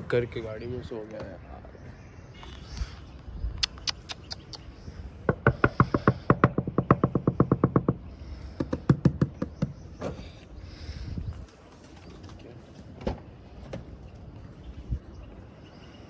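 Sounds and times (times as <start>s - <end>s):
knocking on a car: 5.3s - 9.8s.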